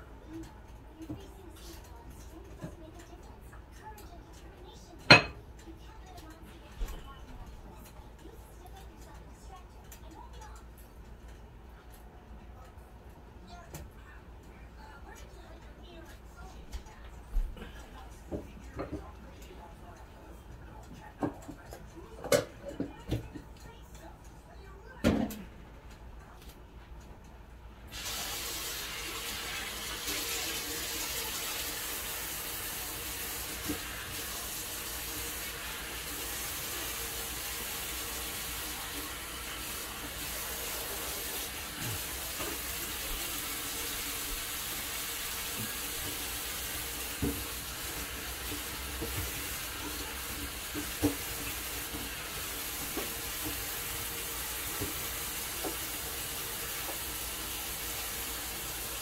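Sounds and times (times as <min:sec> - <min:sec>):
tap running into sink: 0:45.4 - 0:58.4.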